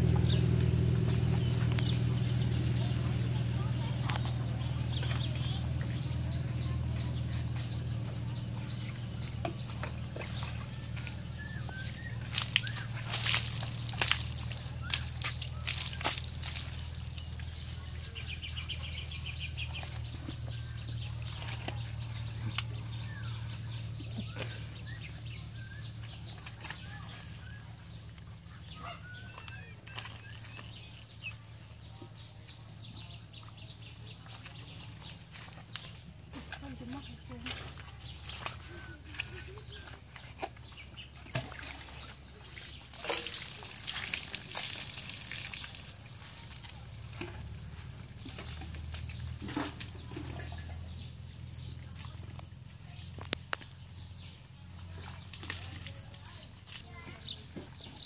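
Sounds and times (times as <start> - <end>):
water splashes: 0.0 - 32.4, 33.3 - 58.0
bird chirp: 0.0 - 58.0
water scooped with a dipper: 10.0 - 17.7, 37.4 - 51.2
faint bird calls: 17.6 - 32.1.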